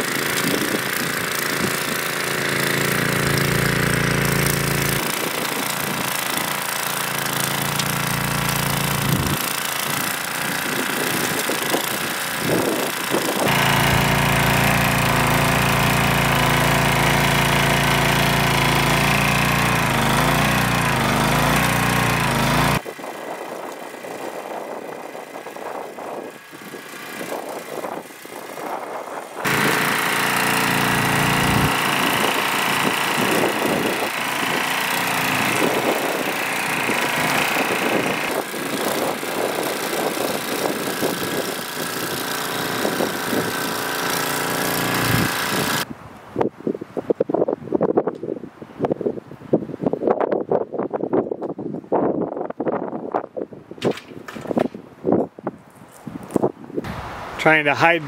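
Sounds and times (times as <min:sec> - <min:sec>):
rototiller engine running: 0:00.0 - 0:45.9
wind noise: 0:10.5 - 0:13.5, 0:33.2 - 0:34.6, 0:45.2 - 0:57.4.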